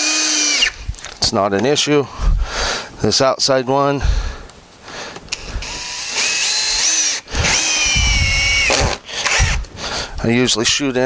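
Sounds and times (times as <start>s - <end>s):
cordless drill motor whine: 0.0s - 0.9s, 5.3s - 9.7s.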